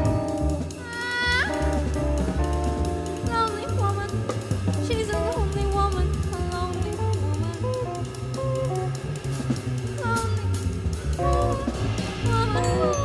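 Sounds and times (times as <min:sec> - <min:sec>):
electric guitar melody: 0:00.0 - 0:05.4, 0:11.2 - 0:13.0
double bass: 0:00.0 - 0:13.0
drum kit: 0:00.0 - 0:13.0.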